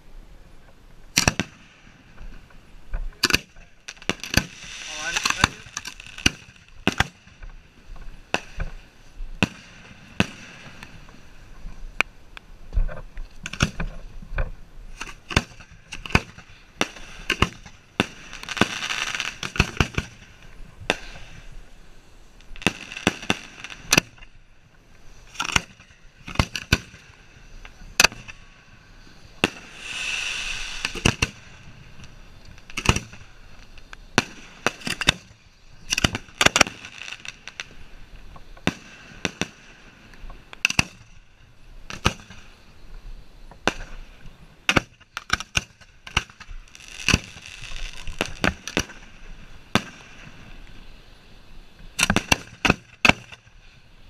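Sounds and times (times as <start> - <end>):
hissing crackle of fireworks: 0.8 - 54.0
fireworks bangs: 1.1 - 11.4, 14.9 - 21.6, 22.4 - 24.4, 25.2 - 37.7.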